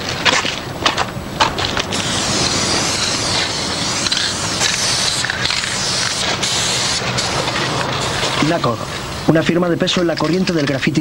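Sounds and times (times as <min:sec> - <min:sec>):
spray-paint can hissing: 0:01.4 - 0:09.3.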